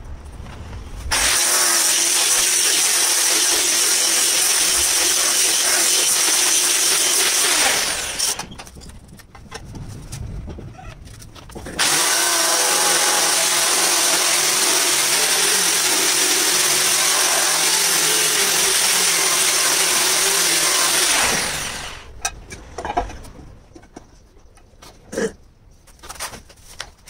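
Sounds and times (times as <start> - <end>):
angle grinder grinding stone: 1.1 - 8.5, 11.7 - 22.1.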